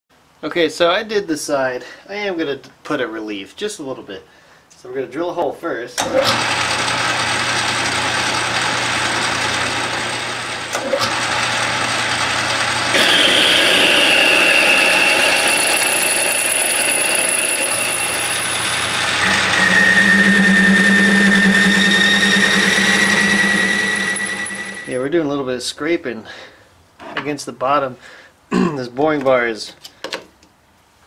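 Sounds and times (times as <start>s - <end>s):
cutting tool whine: 6.3s - 25.0s
metal lathe humming: 7.3s - 25.0s.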